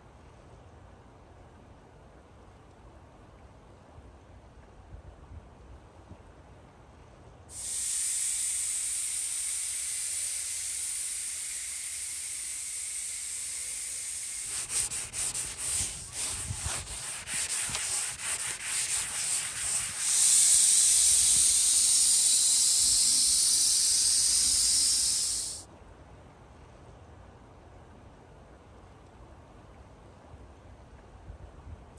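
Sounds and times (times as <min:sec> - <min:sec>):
paint spray gun hissing: 0:07.5 - 0:25.6.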